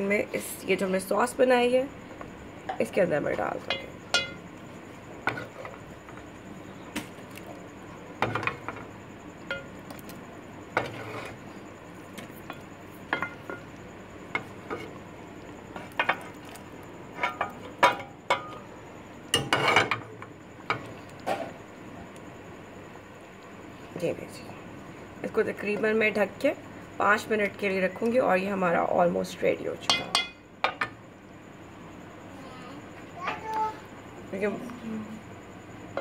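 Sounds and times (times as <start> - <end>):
wooden spoon scraping a pot: 5.2 - 5.9, 10.7 - 11.6.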